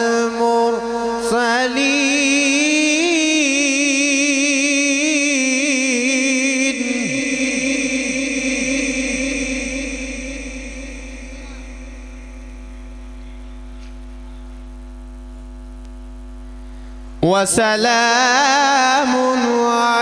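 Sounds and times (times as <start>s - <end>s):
mains hum: 0.0s - 20.0s
steady pitched tone: 2.6s - 13.8s
held recitation note: 6.7s - 14.4s.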